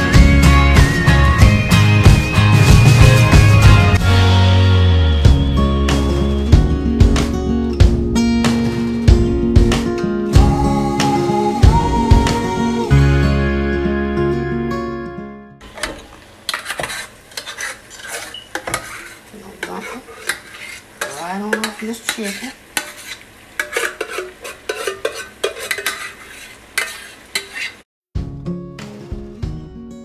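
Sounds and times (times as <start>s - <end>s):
faint sizzle from pan: 15.6s - 27.8s
utensil scraping a metal pot: 15.6s - 27.8s
short squeaks: 16.7s - 19.2s.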